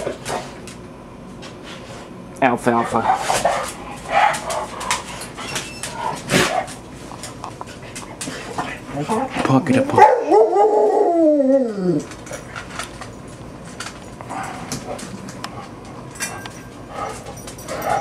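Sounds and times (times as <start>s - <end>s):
dog howling: 9.0s - 12.1s.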